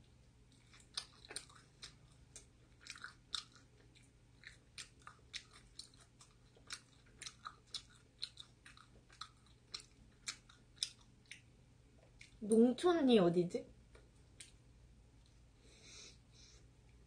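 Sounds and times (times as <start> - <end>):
person chewing pizza: 0.4 - 12.4, 13.9 - 15.5.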